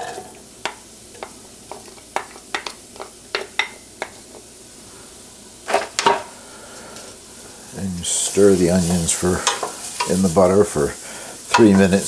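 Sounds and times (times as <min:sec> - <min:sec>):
butter sizzling in pan: 0:00.0 - 0:12.0
wooden spoon tapping and scraping: 0:00.1 - 0:04.5, 0:08.8 - 0:10.2, 0:11.5 - 0:12.0.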